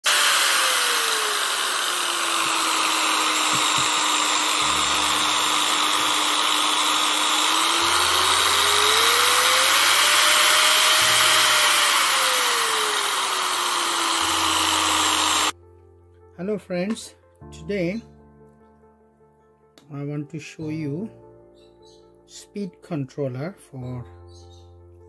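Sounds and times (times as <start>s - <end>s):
angle grinder motor whine: 0.0s - 15.6s.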